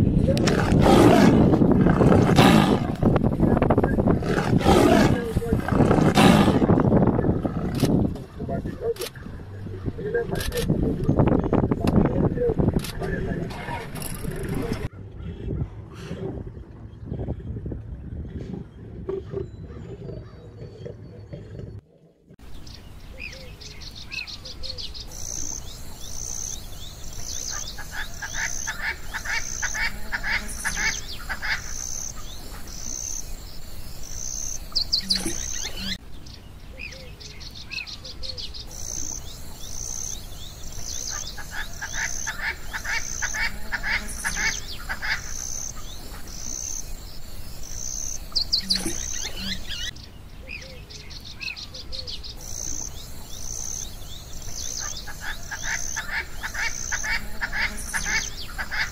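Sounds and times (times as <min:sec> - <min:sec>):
small animals chirping and trilling: 0:36.8 - 0:58.9.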